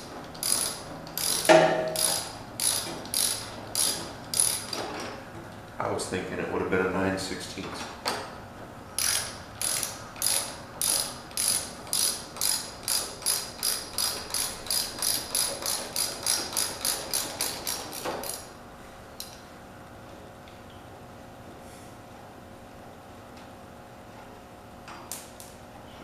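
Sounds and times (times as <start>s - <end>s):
ratchet wrench clicking: 0.0s - 5.0s, 9.0s - 18.5s.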